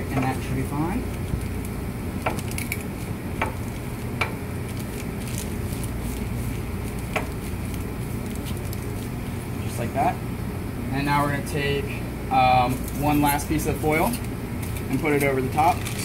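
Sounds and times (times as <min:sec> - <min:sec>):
aluminum foil crinkling: 0:00.2 - 0:09.4, 0:12.7 - 0:16.0.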